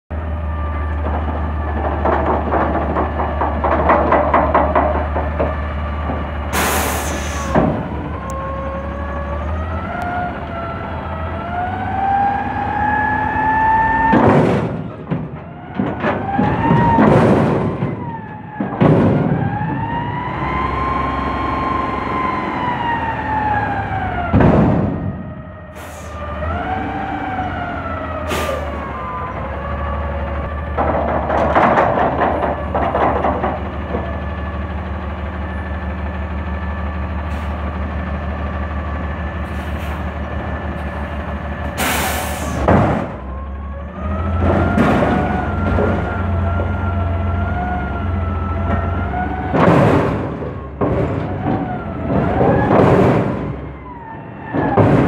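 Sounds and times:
diesel engine hum: 0:00.1 - 0:55.0
metal bangs: 0:00.5 - 0:08.3, 0:13.5 - 0:20.6, 0:22.6 - 0:26.7, 0:30.4 - 0:35.7, 0:39.7 - 0:43.4, 0:44.0 - 0:55.0.

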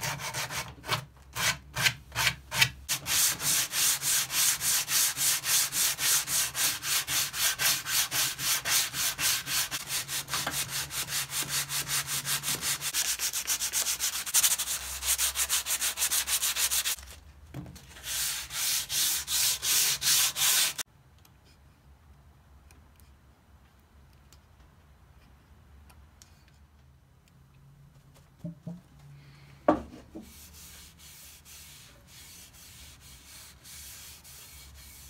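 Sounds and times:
hand sanding wood: 0:00.0 - 0:17.0, 0:18.0 - 0:20.8, 0:30.1 - 0:35.0.

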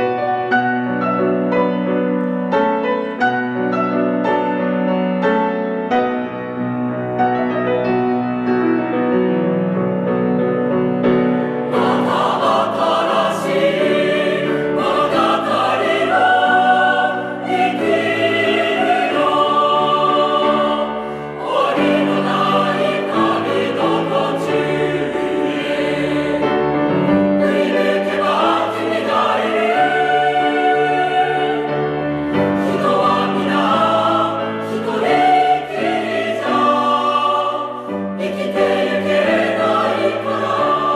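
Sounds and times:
piano accompaniment: 0:00.0 - 0:40.9
choir singing: 0:10.8 - 0:40.9.

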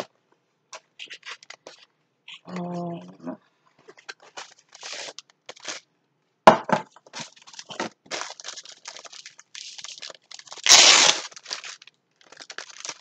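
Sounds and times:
plastic packaging crinkling: 0:01.0 - 0:01.9, 0:03.8 - 0:05.9, 0:07.1 - 0:13.0.

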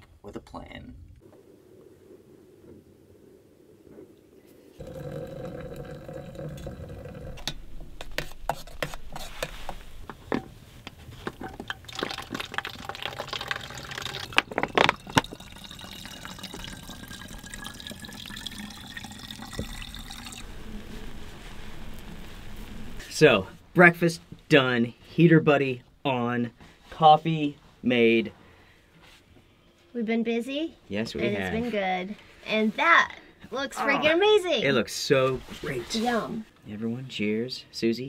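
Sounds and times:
water pouring into containers: 0:04.8 - 0:07.4, 0:11.6 - 0:21.0.

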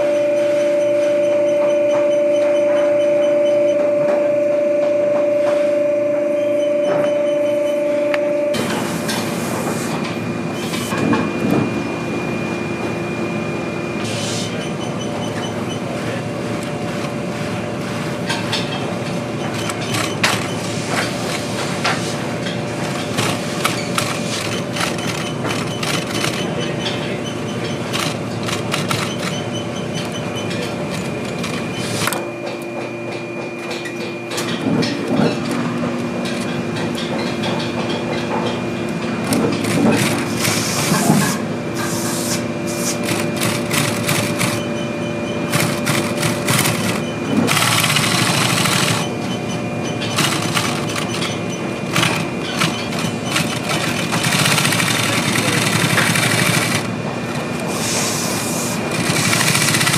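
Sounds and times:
sewing machine stitching: 0:19.5 - 0:21.4, 0:23.1 - 0:26.7, 0:27.8 - 0:30.1, 0:39.2 - 0:41.0, 0:42.9 - 0:44.8, 0:45.4 - 0:49.1, 0:50.1 - 0:56.9, 0:58.9 - 0:59.9.

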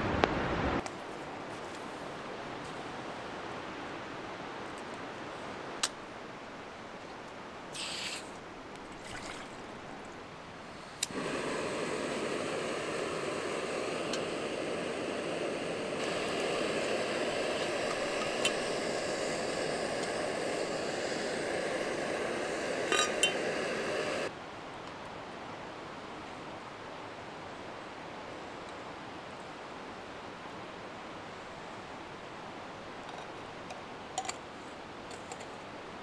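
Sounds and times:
short hiss: 0:07.7 - 0:08.4, 0:10.7 - 0:24.3.

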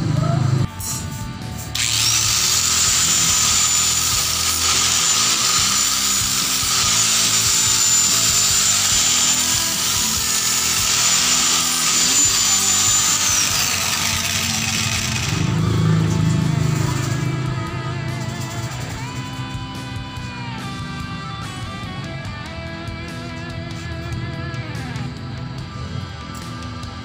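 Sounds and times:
angle grinder whining: 0:01.4 - 0:22.5.

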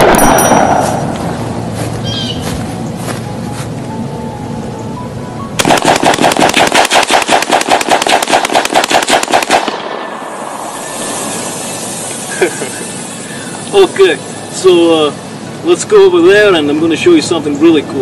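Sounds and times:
rifle firing rapid burst: 0:05.6 - 0:10.0.

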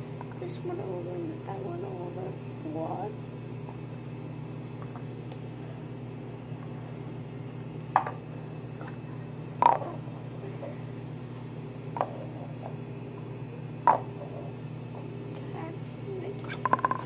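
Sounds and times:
steady low hum: 0:00.0 - 0:17.0
paper cups tapping on table: 0:09.6 - 0:09.9, 0:13.8 - 0:14.1, 0:16.5 - 0:17.0.

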